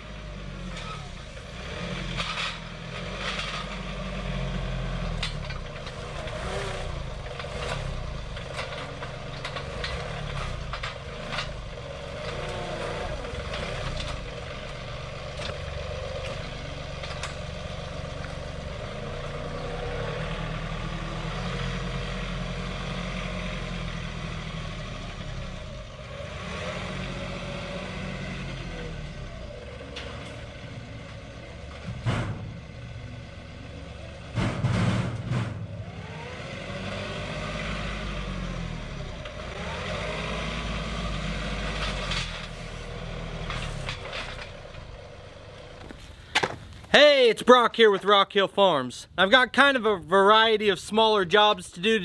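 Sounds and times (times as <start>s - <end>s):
tractor diesel engine running: 0.0s - 52.0s
grapple knocking and clanking: 45.8s - 46.9s.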